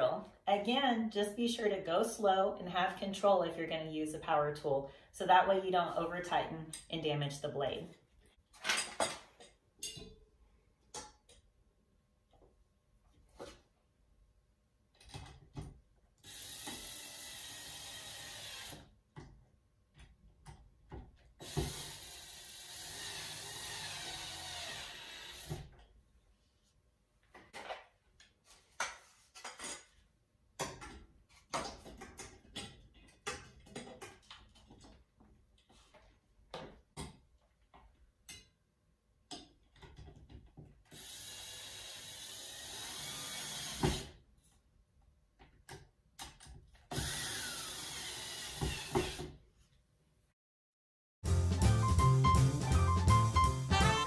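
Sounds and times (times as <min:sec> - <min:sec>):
cordless drill motor: 0:16.2 - 0:18.9, 0:21.4 - 0:25.7, 0:40.9 - 0:44.2, 0:46.9 - 0:49.3.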